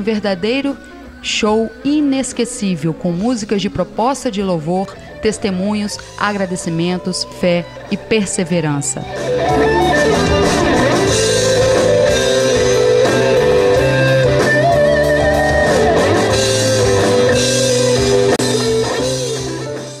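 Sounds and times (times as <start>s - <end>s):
electric guitar bending melody: 0.0s - 20.0s
bass and drums: 9.0s - 20.0s.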